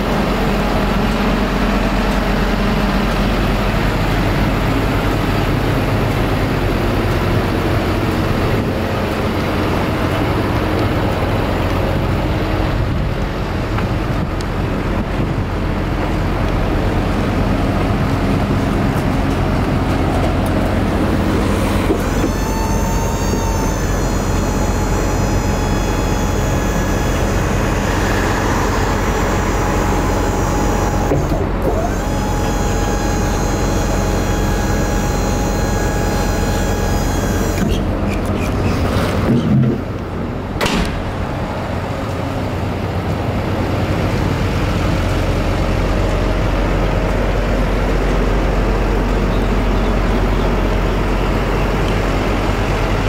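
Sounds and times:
high whine: 0.0 - 39.2
diesel engine idling: 0.0 - 53.0.

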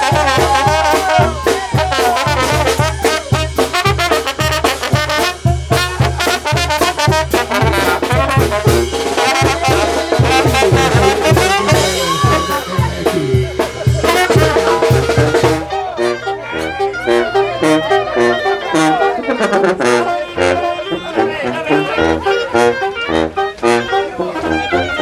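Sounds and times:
steady low drum beat: 0.0 - 18.1
brass band playing cumbia: 0.0 - 25.0
tuba: 0.0 - 25.0.

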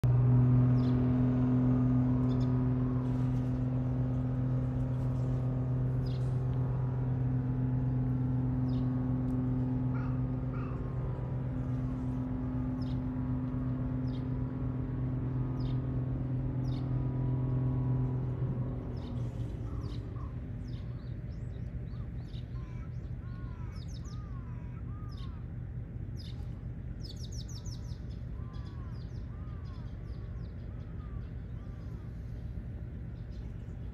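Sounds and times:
steady machine hum: 0.0 - 33.9
bird chirps: 26.2 - 32.2.

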